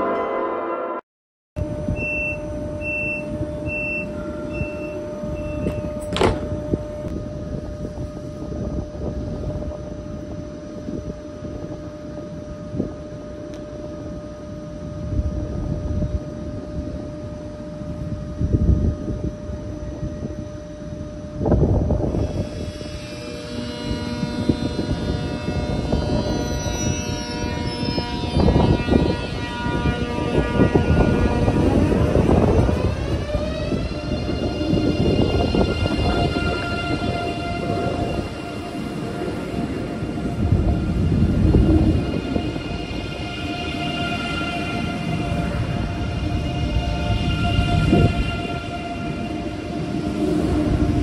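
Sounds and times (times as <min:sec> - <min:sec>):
traction motors whining: 0:01.6 - 0:11.8, 0:21.4 - 0:51.0
electrical hum: 0:01.6 - 0:51.0
door warning beeps: 0:01.9 - 0:06.6
train door shutting: 0:01.9 - 0:07.2.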